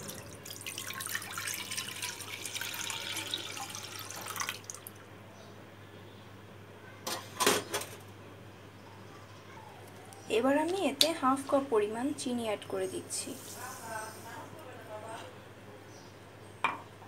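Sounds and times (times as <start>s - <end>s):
milk pouring into a pan: 0.1s - 5.0s.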